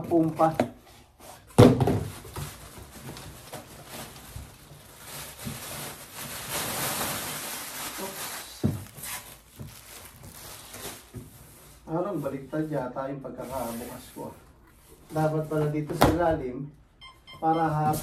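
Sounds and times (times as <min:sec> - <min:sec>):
plastic wrapping rustling: 0:01.3 - 0:12.7.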